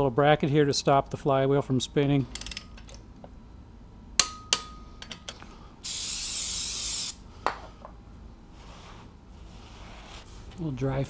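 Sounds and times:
torque wrench clicks: 0:02.3 - 0:02.7
aerosol spray hiss: 0:05.8 - 0:07.2.

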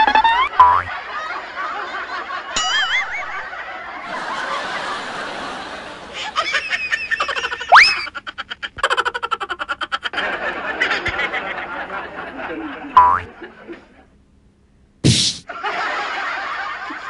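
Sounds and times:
wobbling tone effect: 0:00.0 - 0:00.9
woman snickering and laughing: 0:06.1 - 0:11.0.

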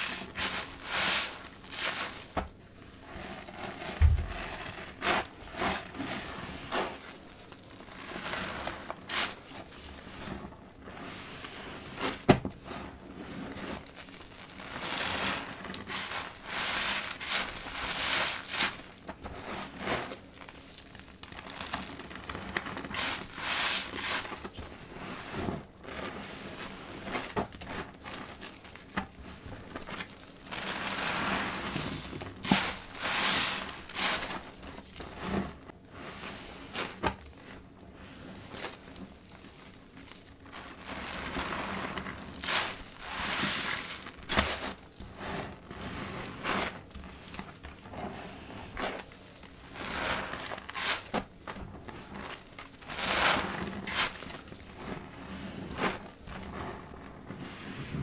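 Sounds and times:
foam bubbles crackling: 0:00.0 - 0:58.0
wet sponges squelching: 0:03.2 - 0:07.1.

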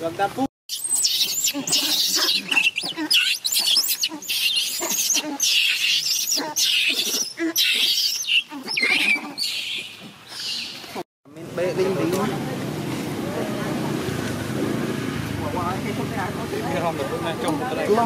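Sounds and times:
monkeys screaming: 0:00.7 - 0:10.7.

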